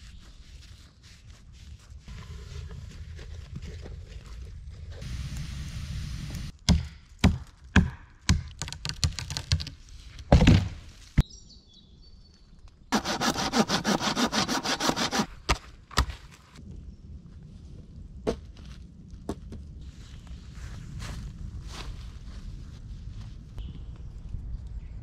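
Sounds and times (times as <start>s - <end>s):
wooden knocks and axe chops: 6.7s - 9.7s, 10.3s - 10.9s, 15.0s - 16.2s
rasping strokes: 12.9s - 15.6s.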